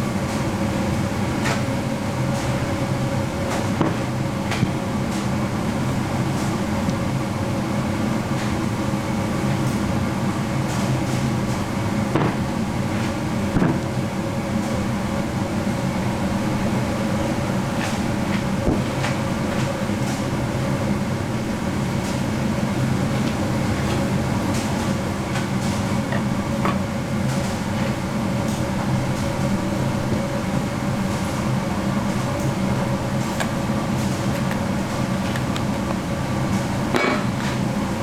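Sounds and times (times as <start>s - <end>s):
machinery hum: 0.0s - 38.0s.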